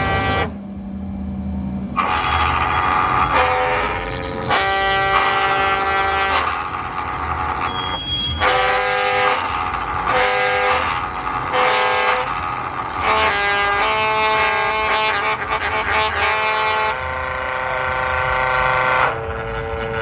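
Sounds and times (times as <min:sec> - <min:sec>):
steady low rumble: 0:00.0 - 0:20.0
calliope whistle chords: 0:02.0 - 0:16.0.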